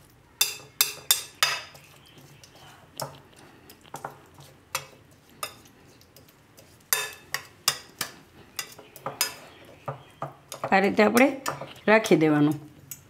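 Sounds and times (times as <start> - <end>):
spoon stirring thick mix: 0.0 - 13.0
spoon clinking on glass bowl: 6.9 - 11.7.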